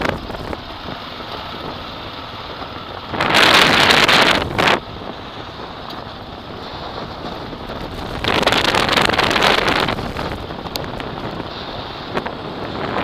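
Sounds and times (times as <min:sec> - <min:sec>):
tyres rumbling on gravel: 0:00.0 - 0:13.0
wind buffeting microphone: 0:00.0 - 0:13.0.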